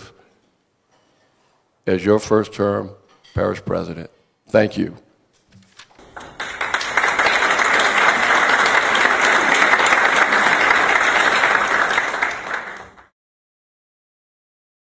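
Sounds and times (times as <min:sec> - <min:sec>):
crowd applauding: 0:06.0 - 0:13.1.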